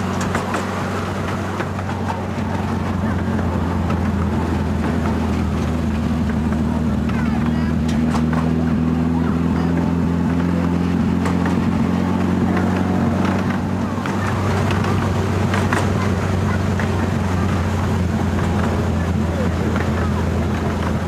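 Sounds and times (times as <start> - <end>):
locomotive engine humming: 0.0 - 21.0
train wheels clicking on track: 0.0 - 21.0.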